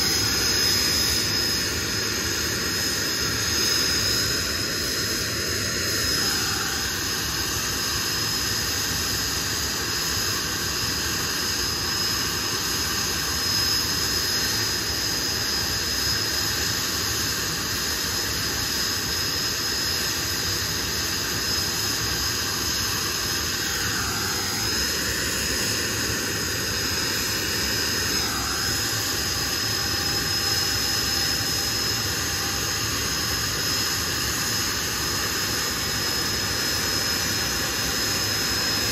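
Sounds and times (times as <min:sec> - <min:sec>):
jet engine whine: 0:00.0 - 0:38.9.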